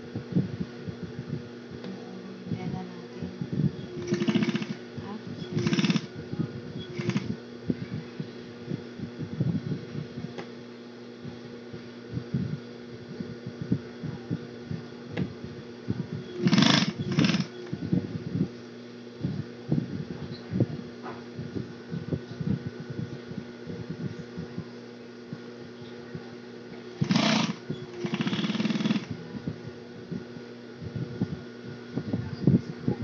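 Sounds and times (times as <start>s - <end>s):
sewing machine motor humming: 3.8s - 4.8s, 5.4s - 6.1s, 6.9s - 7.4s, 16.3s - 17.7s, 26.9s - 29.2s
sewing machine needle stitching: 4.0s - 4.8s, 5.5s - 6.1s, 6.9s - 7.3s, 16.4s - 17.5s, 27.0s - 29.1s.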